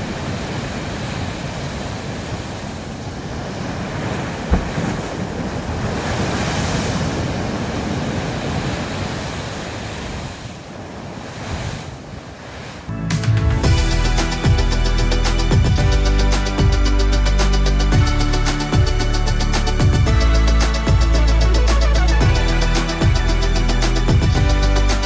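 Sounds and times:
sea waves crashing on rocks: 0:00.0 - 0:12.9
short thump: 0:04.5 - 0:05.0.

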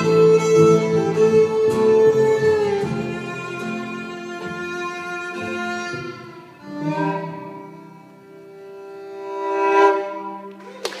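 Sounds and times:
audience applause: 0:10.7 - 0:11.0.

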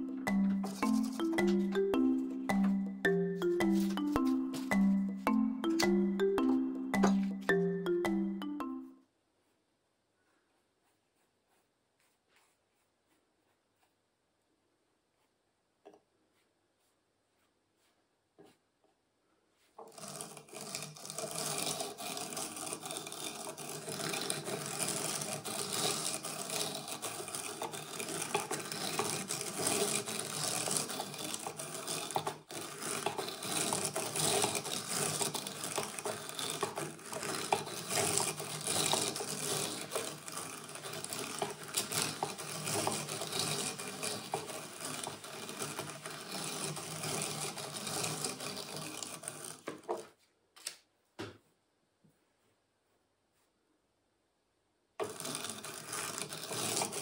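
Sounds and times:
drum carder scratchy rustle: 0:19.6 - 0:49.9, 0:55.0 - 0:57.0.

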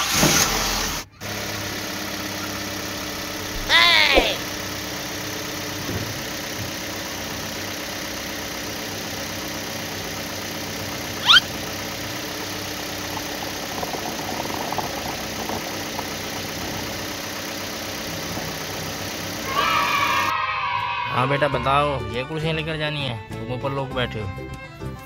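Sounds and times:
engine idling: 0:00.0 - 0:20.3
sharp rising chirp: 0:11.2 - 0:11.6.

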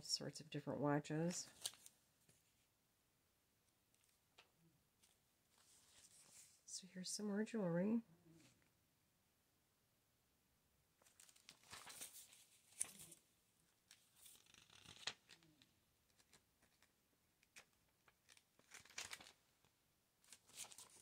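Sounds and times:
paper pages rustling: 0:01.5 - 0:02.7, 0:04.0 - 0:06.6, 0:11.0 - 0:13.2, 0:13.8 - 0:19.4, 0:20.2 - 0:21.0.

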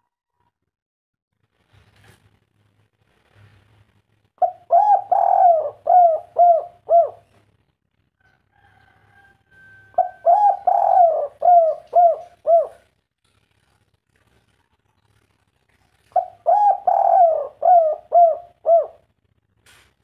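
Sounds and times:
dove cooing: 0:04.4 - 0:07.4, 0:09.6 - 0:13.0, 0:16.0 - 0:19.1.

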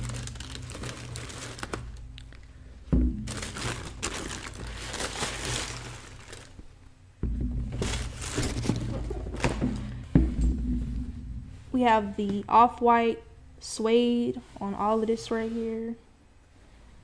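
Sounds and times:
wrapping paper crinkling: 0:00.0 - 0:02.4, 0:03.2 - 0:06.7, 0:07.8 - 0:09.6.

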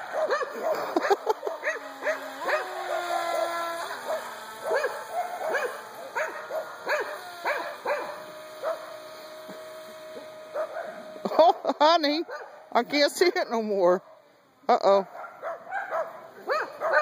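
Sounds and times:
dog barking: 0:00.0 - 0:08.9, 0:10.5 - 0:11.0, 0:12.3 - 0:12.6, 0:15.1 - 0:17.0
model boat motor whining: 0:00.0 - 0:13.9.

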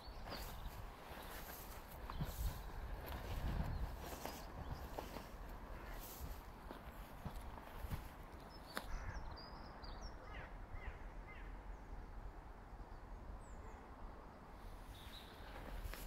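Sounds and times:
bird calling: 0:00.0 - 0:11.7
wind rumble on microphone: 0:00.0 - 0:16.0.

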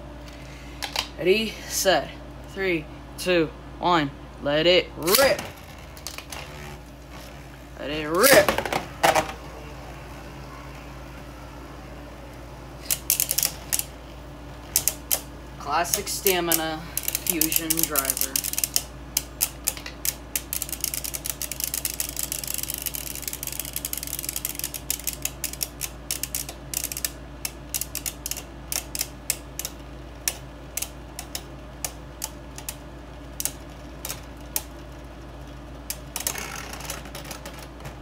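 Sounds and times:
spinning tops clicking: 0:12.8 - 0:13.9, 0:14.7 - 0:32.8.

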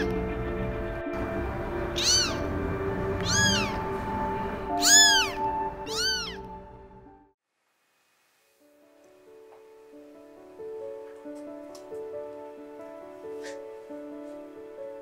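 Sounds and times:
background music: 0:00.0 - 0:07.4, 0:08.6 - 0:15.0
kitten meowing: 0:01.9 - 0:02.5, 0:03.2 - 0:03.9, 0:04.7 - 0:06.5.

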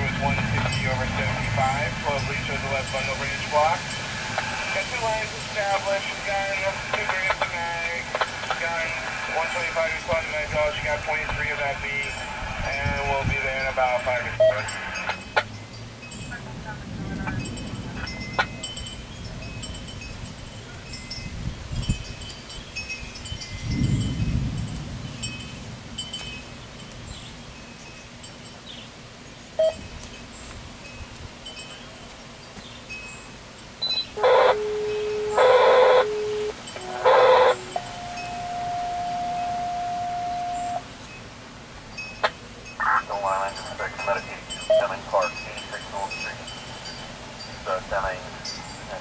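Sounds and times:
wind chimes tinkling: 0:00.0 - 0:28.8, 0:29.6 - 0:49.0
radio scanner tone bursts: 0:03.2 - 0:15.2, 0:33.8 - 0:40.9, 0:43.9 - 0:46.0.

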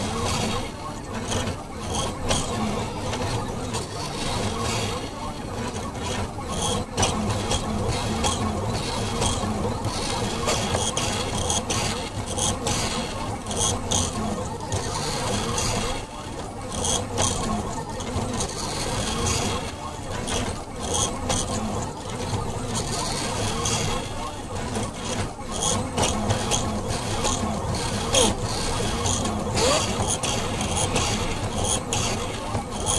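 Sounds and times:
stepper motors whining: 0:20.9 - 0:32.9.

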